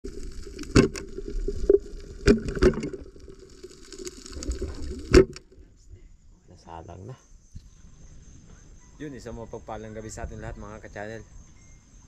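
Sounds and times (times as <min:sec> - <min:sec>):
muffled underwater rush and hiss: 0:00.1 - 0:06.1.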